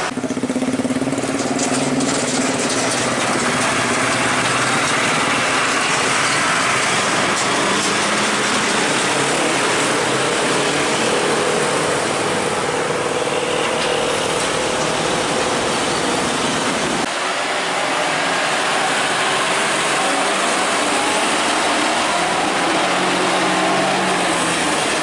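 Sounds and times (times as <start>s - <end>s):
diesel trucks passing: 0.0s - 25.0s
motorcycles passing: 0.0s - 25.0s.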